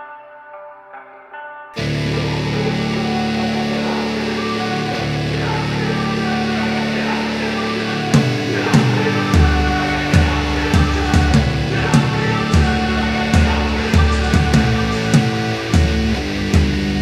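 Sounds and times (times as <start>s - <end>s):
guitar-heavy rock music: 0.0s - 17.0s
drum hits: 8.2s - 16.9s.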